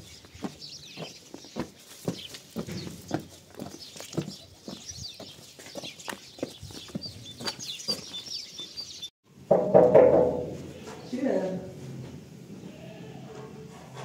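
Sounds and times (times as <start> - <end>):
footsteps on gravelly dirt: 0.0 - 8.8
birds chirping: 0.0 - 9.1.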